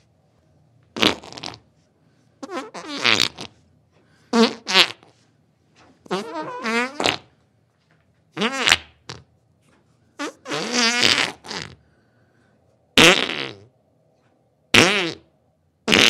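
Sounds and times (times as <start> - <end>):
sputtering farts: 1.0 - 1.7, 2.4 - 3.6, 4.3 - 5.1, 6.0 - 7.3, 8.4 - 9.3, 10.2 - 11.8, 13.0 - 13.7, 14.7 - 15.3.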